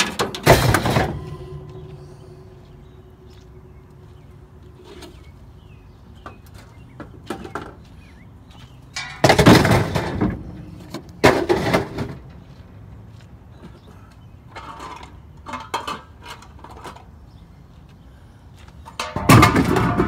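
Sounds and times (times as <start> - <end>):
metal crashing and clattering: 0.0 - 3.0, 9.0 - 12.2, 19.0 - 20.0.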